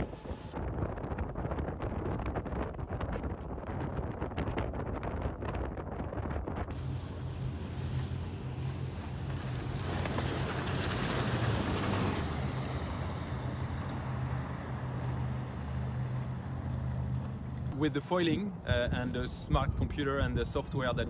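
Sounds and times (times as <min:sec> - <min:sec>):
wind on microphone: 0:00.0 - 0:16.9, 0:18.3 - 0:21.0
boat motor hum: 0:00.0 - 0:19.0
water rushing: 0:06.7 - 0:17.7.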